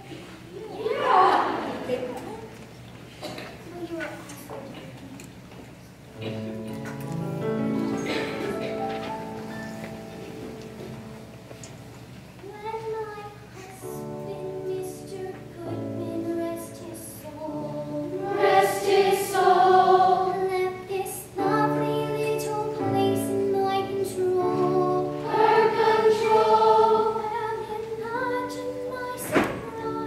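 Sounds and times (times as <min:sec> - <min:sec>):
young voices singing together: 0:00.0 - 0:02.2, 0:12.4 - 0:30.0.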